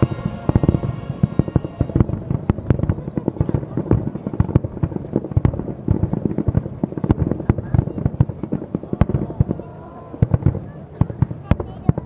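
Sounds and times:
firework shells bursting: 0.0 - 9.6.

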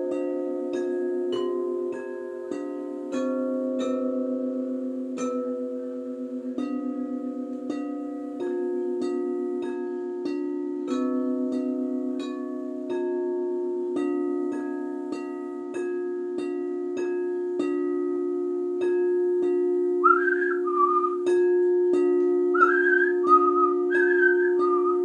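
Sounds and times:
crystal singing bowls ringing: 0.0 - 25.0
person whistling a tune: 20.0 - 21.3, 22.5 - 25.0.

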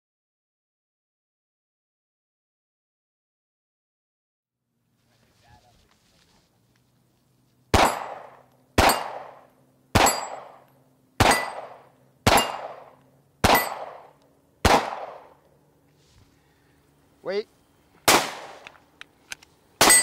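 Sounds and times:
pistol shots echoing: 7.7 - 15.4, 18.0 - 18.7, 19.8 - 20.0.

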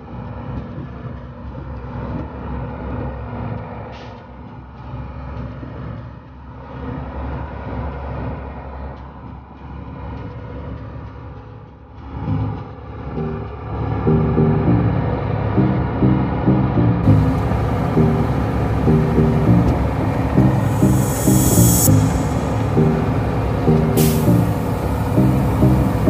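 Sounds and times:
vehicle engine rumble: 11.8 - 26.0
tyre and road noise: 17.0 - 26.0.

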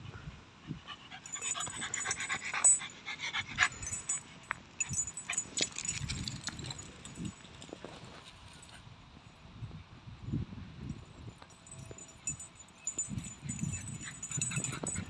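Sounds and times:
small dogs panting: 0.6 - 6.0, 13.0 - 15.0.

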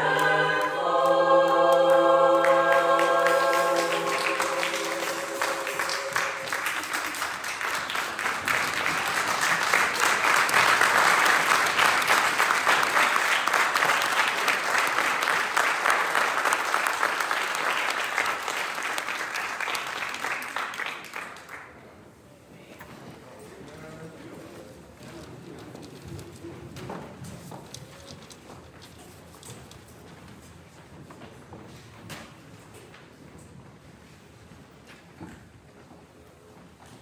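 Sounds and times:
choir holding a chord: 0.0 - 7.0
congregation applauding: 0.0 - 21.8.

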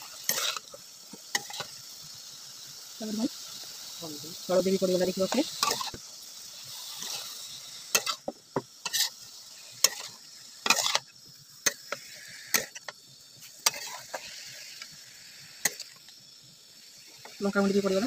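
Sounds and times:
spatula scraping metal wok: 0.0 - 1.8, 5.0 - 6.0, 6.6 - 15.0
faint sizzle: 0.0 - 18.0.

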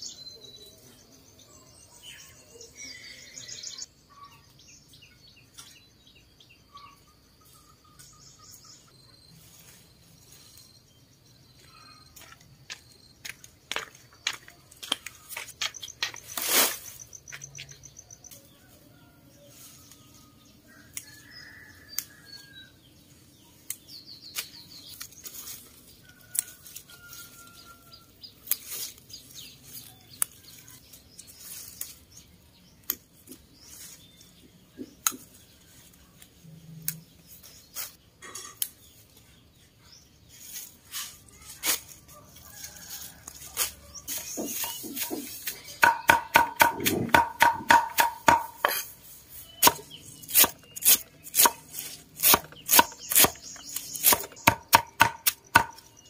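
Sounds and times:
small birds chirping: 0.0 - 56.0
leafy rustling: 14.7 - 17.2, 24.3 - 34.4, 35.2 - 38.0, 40.2 - 45.8, 48.7 - 54.3.

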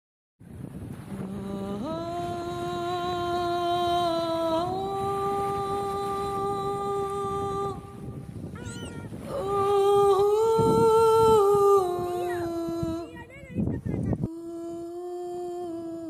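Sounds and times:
person humming long notes: 1.1 - 13.1, 14.2 - 16.0
quick rising squeaks: 8.6 - 9.1.

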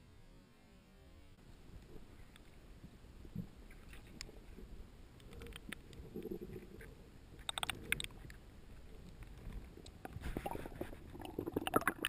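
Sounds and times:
muffled underwater rumble: 1.4 - 12.0
sharp clicks and ticks: 7.4 - 8.4.

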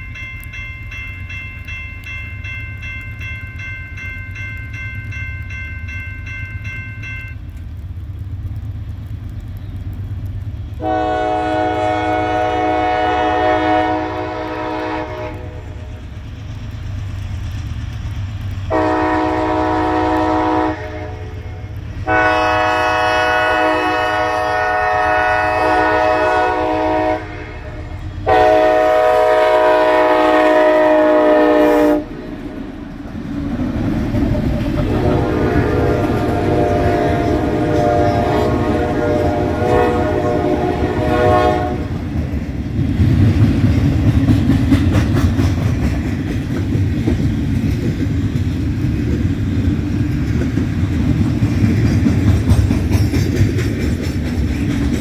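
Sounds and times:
low rumble of locomotives: 0.0 - 55.0
low chord horn blasts: 10.8 - 15.9, 18.7 - 32.2, 34.8 - 42.0
high-pitched locomotive horn: 10.8 - 16.0, 18.7 - 32.2, 34.8 - 42.0.

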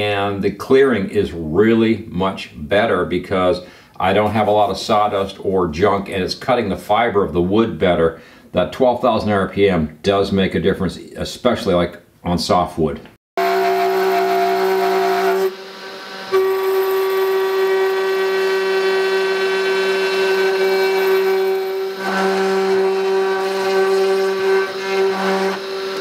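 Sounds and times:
router motor whining: 13.4 - 26.0
bit rasping into wood: 16.3 - 26.0.

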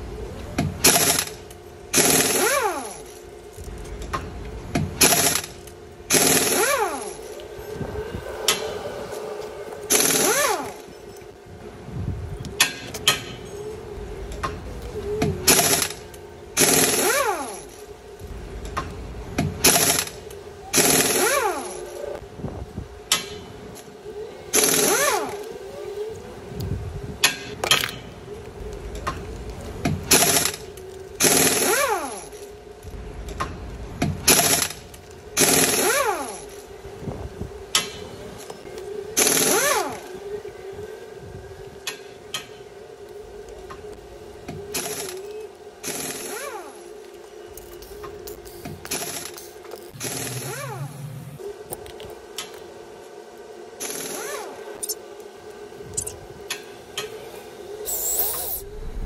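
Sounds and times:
rc car motor rattling and whining: 57.9 - 59.0.

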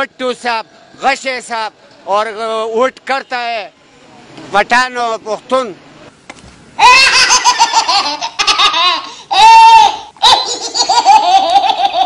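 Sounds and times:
men laughing loudly: 6.8 - 12.0.

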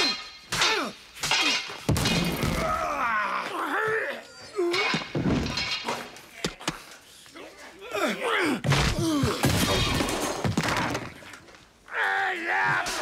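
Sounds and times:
men grunting and crying out: 0.5 - 5.2, 7.5 - 10.2
things breaking: 8.7 - 11.5.

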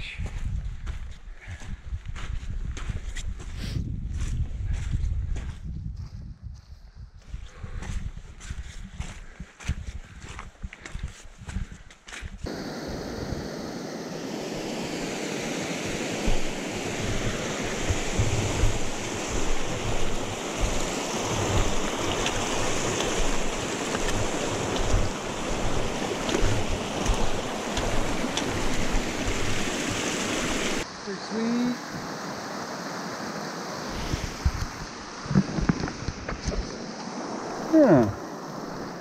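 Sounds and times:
wind buffeting microphone: 0.0 - 30.8, 33.9 - 36.7
stream rushing over rocks: 12.5 - 39.0.

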